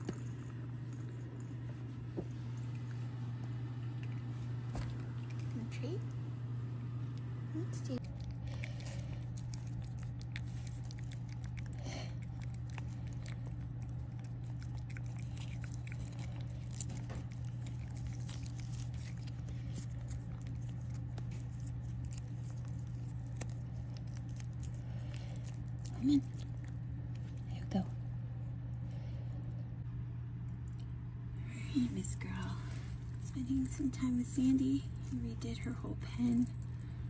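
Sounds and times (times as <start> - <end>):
steady low hum: 0.0 - 37.0
cat licking: 8.0 - 27.4.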